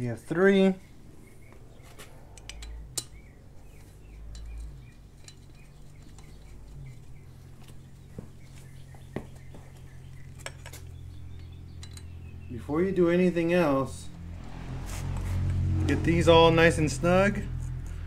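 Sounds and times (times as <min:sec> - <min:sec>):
low hum: 0:13.9 - 0:18.0.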